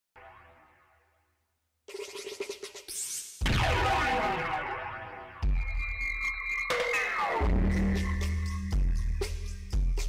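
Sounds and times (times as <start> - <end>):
glitch and scratch effects: 1.9 - 8.7
electronic music: 1.9 - 10.0
loud hit with deep bass: 3.4 - 4.4.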